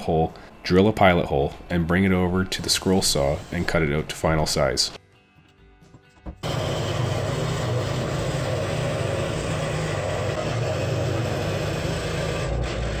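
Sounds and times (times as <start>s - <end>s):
scroll saw cutting board: 6.4s - 13.0s.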